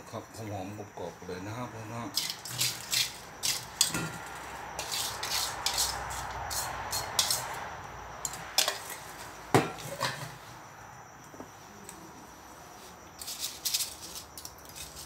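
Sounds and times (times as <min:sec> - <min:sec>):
metal tongs scraping a metal bowl: 0:02.1 - 0:07.6
dry rustle of fried herbs: 0:12.5 - 0:15.0.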